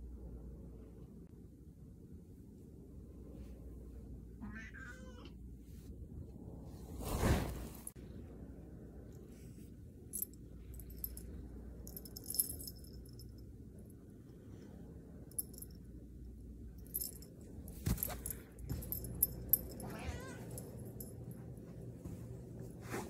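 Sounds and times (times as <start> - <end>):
cat meowing: 4.4 - 5.4, 19.8 - 20.5
rustling and handling noises: 9.2 - 13.4, 16.8 - 23.0.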